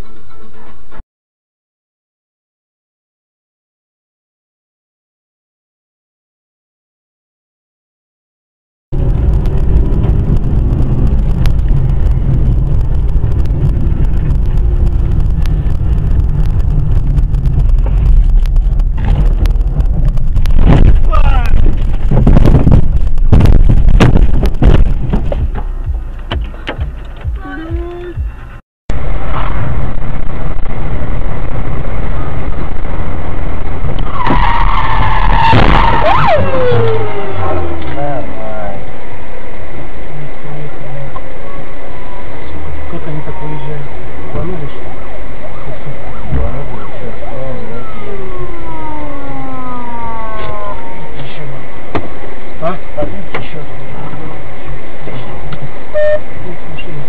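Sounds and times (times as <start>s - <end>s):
wind buffeting: 8.9s - 27.4s, 28.2s - 39.9s
car engine and road rumble: 8.9s - 57.0s
car tyres squealing in a skid: 34.0s - 38.0s.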